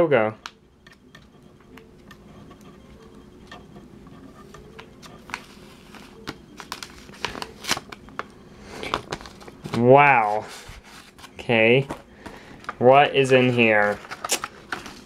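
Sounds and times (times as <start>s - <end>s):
paper crackles: 4.5s - 15.0s
paper envelope rustling: 5.0s - 15.0s.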